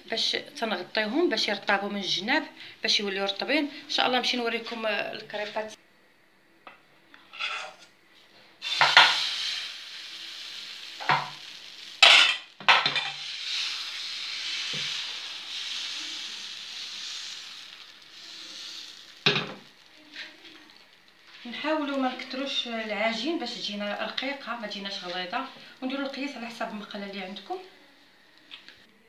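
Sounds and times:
batter sizzling in frying pan: 7.5 - 28.9.

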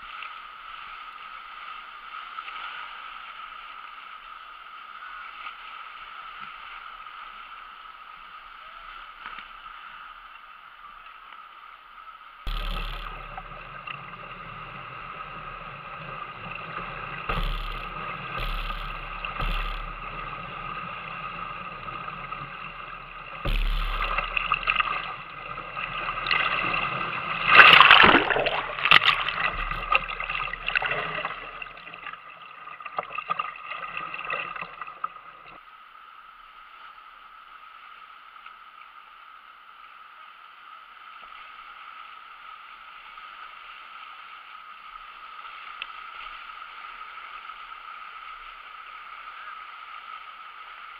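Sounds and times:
muffled rapids rushing and splashing: 0.0 - 50.9
water splashing over boat: 12.5 - 35.6.

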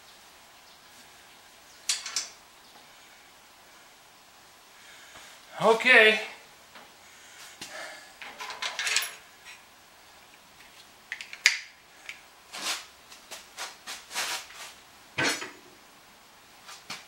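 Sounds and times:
tools clattering: 1.9 - 2.4, 8.2 - 9.6, 15.2 - 15.6.

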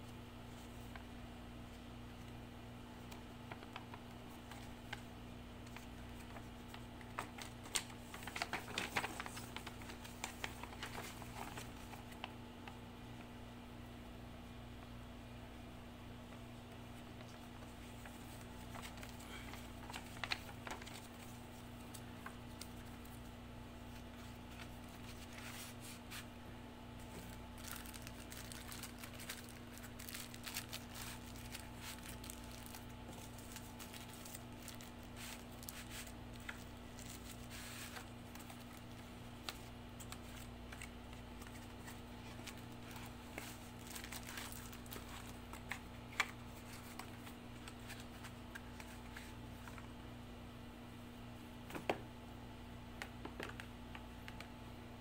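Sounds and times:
air conditioner hum: 0.0 - 55.0
cardboard and plastic bag rustling: 27.0 - 49.8.

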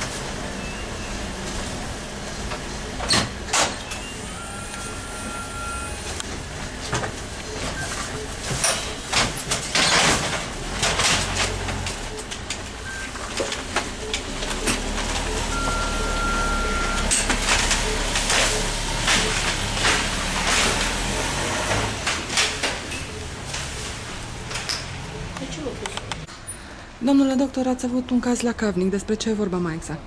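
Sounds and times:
steady beep: 4.0 - 6.1, 14.0 - 19.5.

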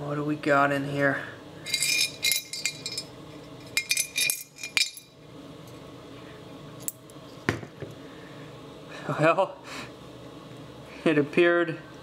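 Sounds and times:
coins clinking in metal bank: 1.7 - 3.1, 3.7 - 5.1.

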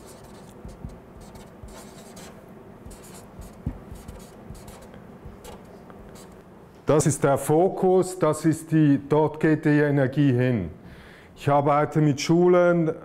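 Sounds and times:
marker writing on paper: 0.0 - 6.4
low knock: 3.6 - 4.0.

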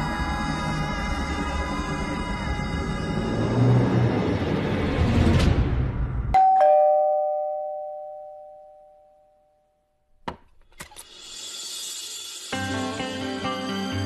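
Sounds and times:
background music: 0.0 - 6.6, 10.9 - 14.0
two-note doorbell chime: 6.4 - 9.8.

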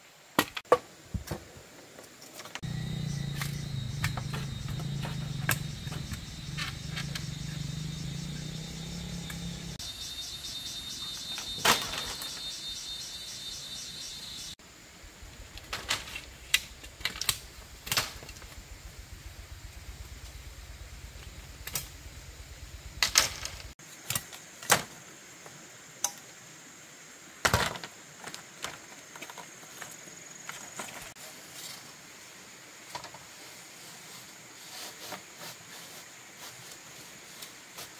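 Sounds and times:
high-pitched drone: 2.6 - 23.6.

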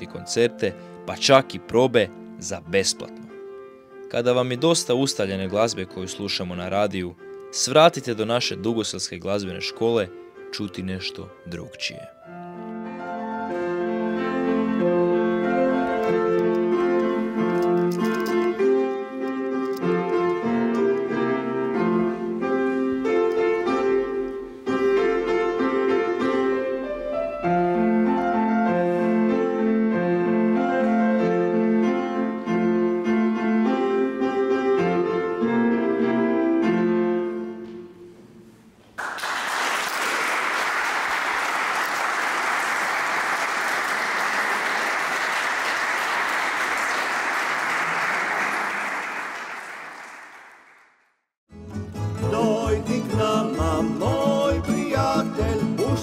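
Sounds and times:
solo grand piano piece: 9.6 - 38.8
audience applauding: 39.0 - 51.0.

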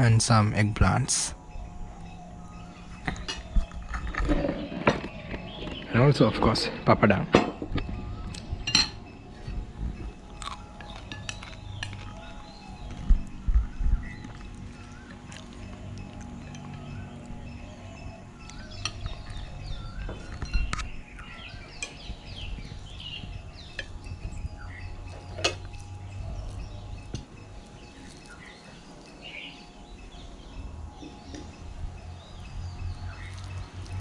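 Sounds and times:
small birds chirping: 0.0 - 34.0
plates and cutlery clinking: 8.7 - 9.1.

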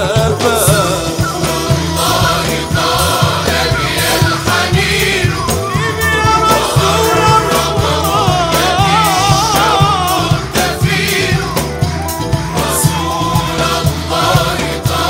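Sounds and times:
solo voice singing: 0.0 - 11.5
choir singing: 0.0 - 15.0
frame drums and tambourine: 0.0 - 15.0.

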